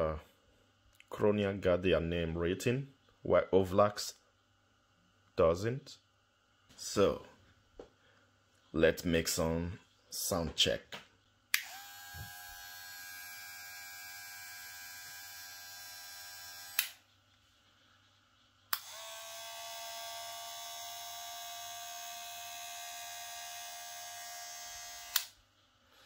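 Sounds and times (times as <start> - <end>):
hair clipper switch click: 11.5 - 11.8, 16.7 - 17.0, 25.0 - 25.4
hair clippers buzzing: 11.5 - 17.0, 18.7 - 25.4.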